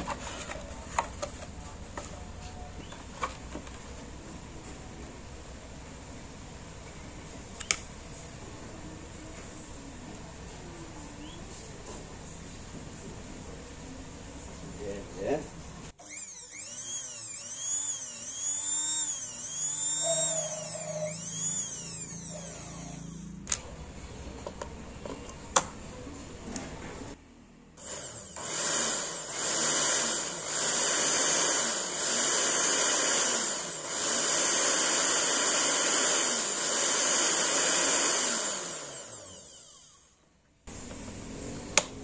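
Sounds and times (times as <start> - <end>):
blender motor whining: 16.0 - 23.5, 27.8 - 40.2.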